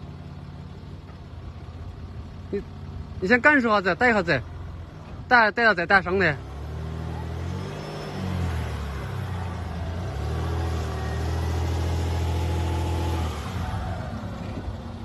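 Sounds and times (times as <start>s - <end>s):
car engine revving: 6.0s - 15.0s.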